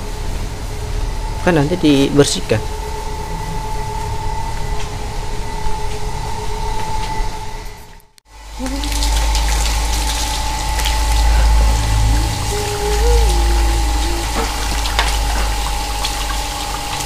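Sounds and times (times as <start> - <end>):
steady hum: 0.0 - 6.7, 8.3 - 17.0
hose water into metal bowl: 8.6 - 17.0.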